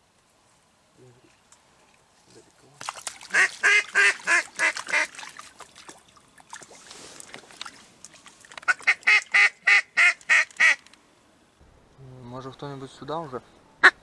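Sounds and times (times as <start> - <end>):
duck call quacks: 3.3 - 5.1, 8.7 - 10.8.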